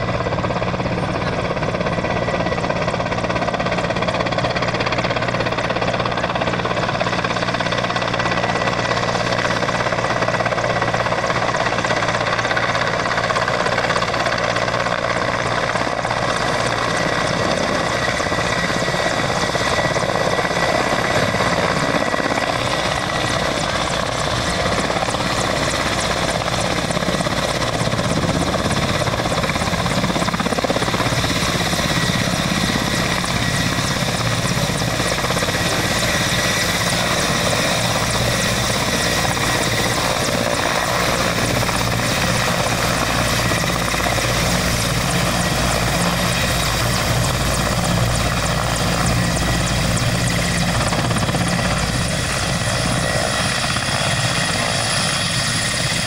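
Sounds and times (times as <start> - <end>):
helicopter rotor beating: 0.0 - 56.0
high turbine whine: 14.9 - 56.0.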